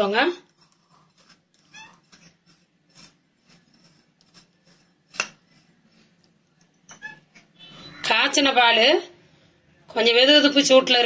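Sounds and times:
spoon scraping dry powder: 0.0s - 7.9s.

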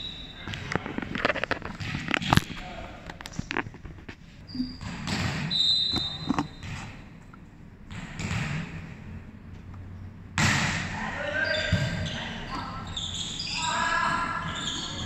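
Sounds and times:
ball bouncing on hard floor: 0.5s - 2.6s
high squeak: 4.4s - 6.6s, 11.4s - 15.0s.

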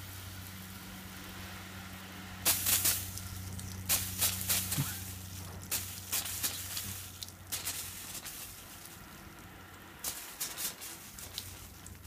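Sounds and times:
water spraying on plastic roof: 0.0s - 12.0s
water taps and drips: 2.4s - 12.0s.

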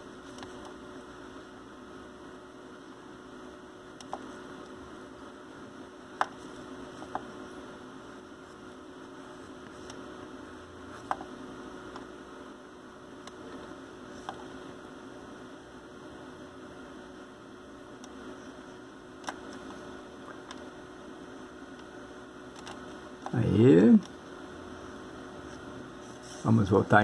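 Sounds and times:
steady hum: 0.0s - 27.0s
pencil tapping on screen: 6.2s - 7.4s, 11.0s - 11.3s, 14.2s - 14.5s.

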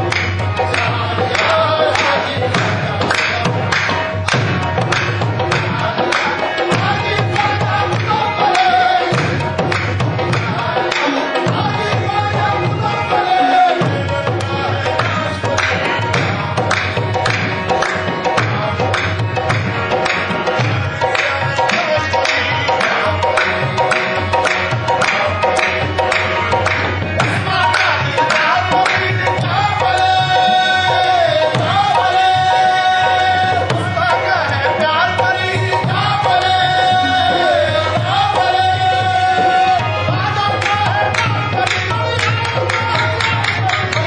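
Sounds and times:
harmonium: 0.0s - 44.0s
tabla rhythm: 0.0s - 44.0s.

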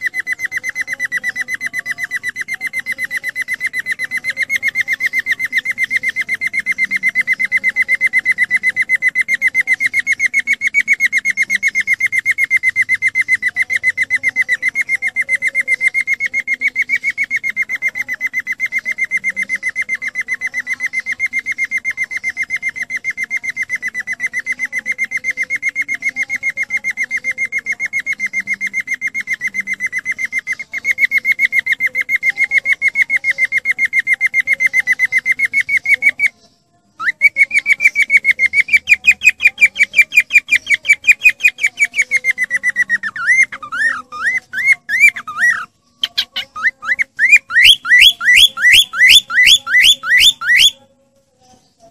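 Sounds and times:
cockatiel whistled chirps: 37.0s - 50.8s.

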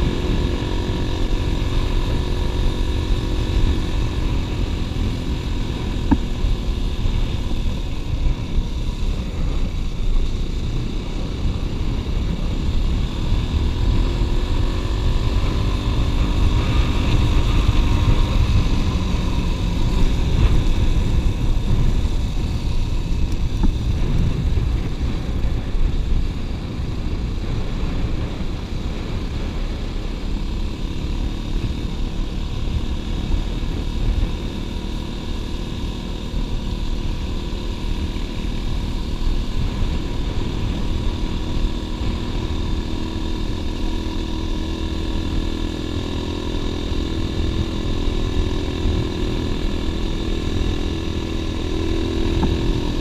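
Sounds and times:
wind buffeting microphone: 15.4s - 30.0s.

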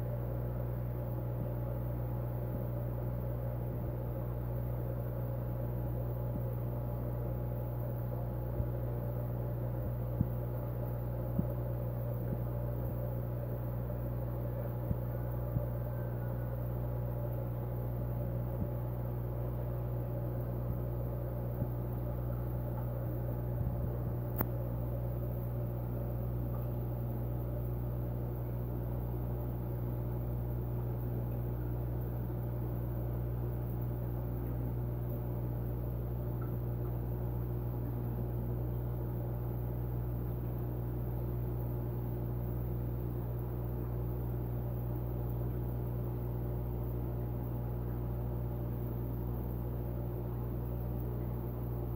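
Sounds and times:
aquarium pump humming: 0.0s - 51.9s.

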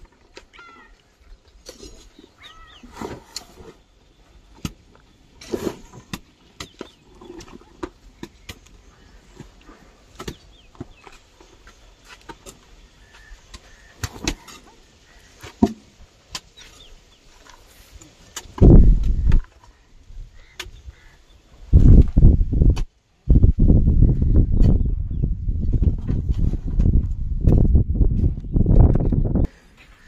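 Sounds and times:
hoes scraping earth: 0.0s - 25.0s, 25.6s - 30.0s.

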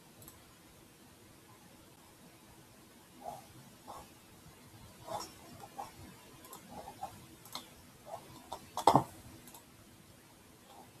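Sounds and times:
computer mouse clicking: 0.2s - 0.4s, 5.0s - 9.7s.

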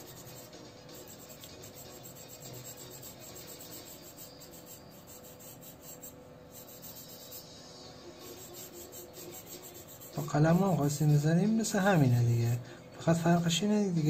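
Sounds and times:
pencil and brush rasping on paper: 0.0s - 7.6s, 8.2s - 11.2s.

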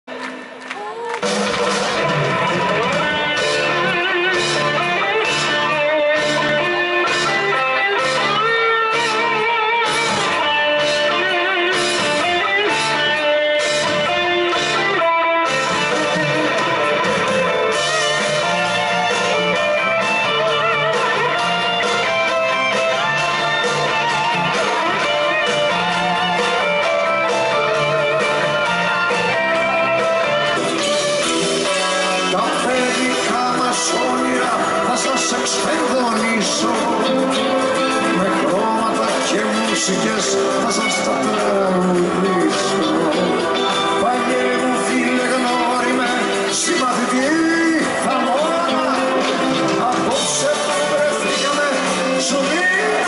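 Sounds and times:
electric guitar: 0.1s - 53.0s
live rock band playing: 0.1s - 53.0s.

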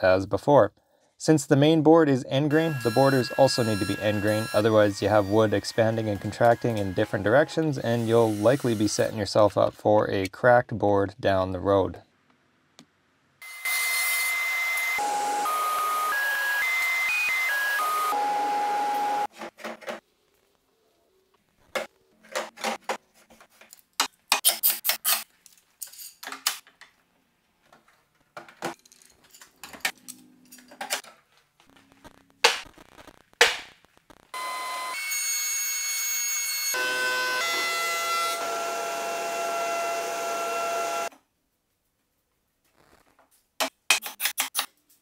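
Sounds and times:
thickness planer running: 2.7s - 8.4s, 36.8s - 41.1s.

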